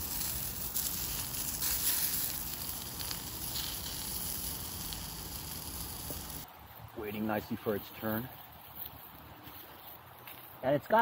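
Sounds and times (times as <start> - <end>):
sausages sizzling in a frying pan: 0.0 - 6.5.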